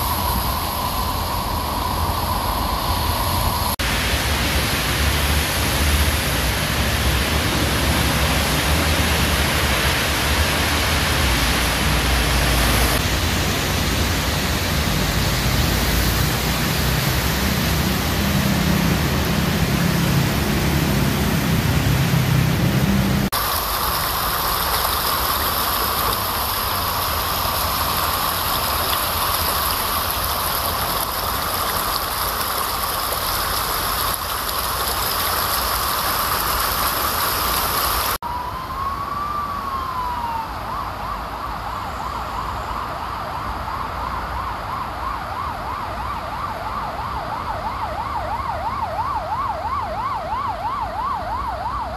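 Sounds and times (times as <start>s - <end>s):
rain and flood water rushing: 0.0s - 51.9s.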